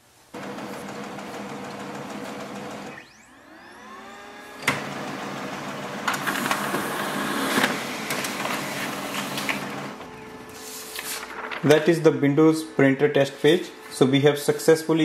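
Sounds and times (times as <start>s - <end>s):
printer click: 0.4s - 2.9s, 4.5s - 10.3s
paper feeding whir and clatter: 0.4s - 12.2s, 12.8s - 14.8s
printer motor whine: 0.4s - 15.0s.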